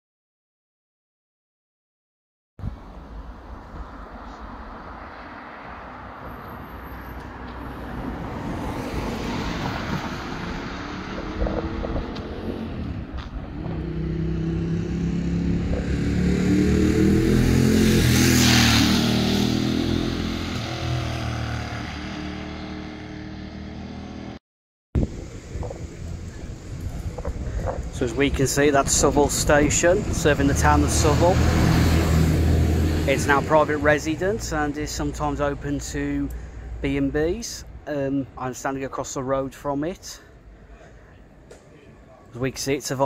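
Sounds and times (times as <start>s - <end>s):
vehicle engine passing: 2.9s - 24.4s, 25.0s - 37.1s.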